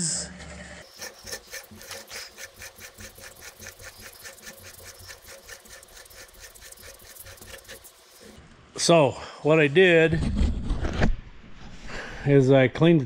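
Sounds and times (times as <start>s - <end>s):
nut spinning on threads ticking: 0.8s - 8.3s.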